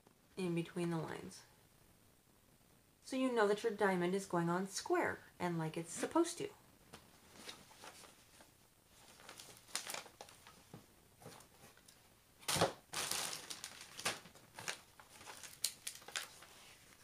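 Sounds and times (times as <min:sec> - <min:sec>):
plastic film crinkling: 0:07.4 - 0:17.0.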